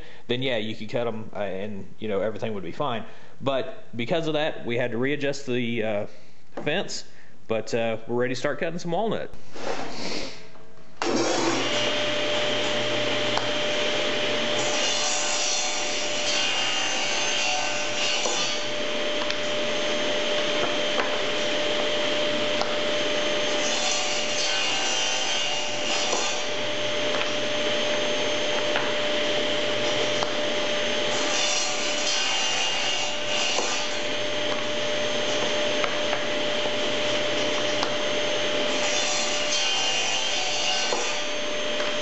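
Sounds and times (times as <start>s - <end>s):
table saw cutting wood: 11.0s - 42.0s.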